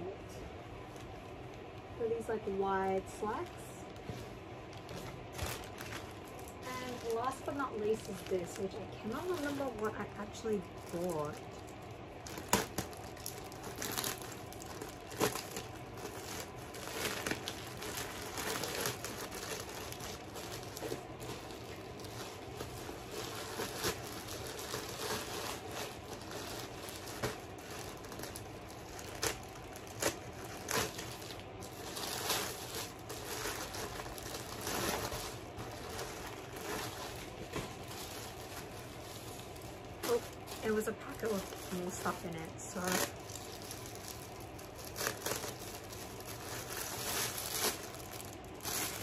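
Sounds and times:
plastic bag crinkling: 0.8s - 49.0s
plastic crackling and ripping: 3.1s - 49.0s.

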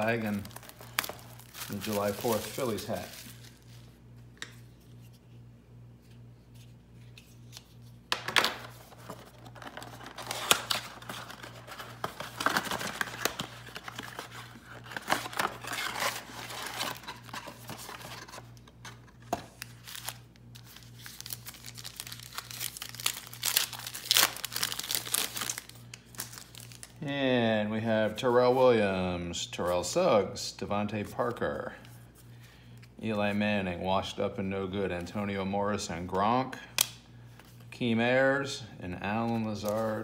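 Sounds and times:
foil packs crinkling and ripping: 0.0s - 4.0s, 8.8s - 18.6s, 19.5s - 27.0s
faint steady hum: 0.0s - 40.0s
cardboard box tearing: 9.9s - 18.2s.

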